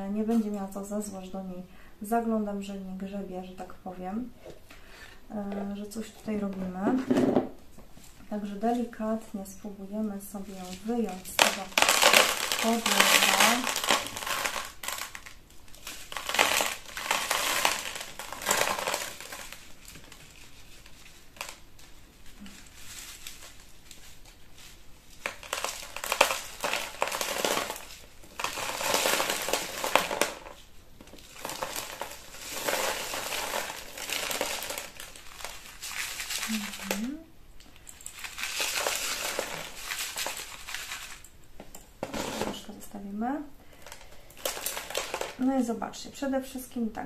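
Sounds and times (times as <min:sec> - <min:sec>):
granular substrate rattling: 0:24.5 - 0:37.2.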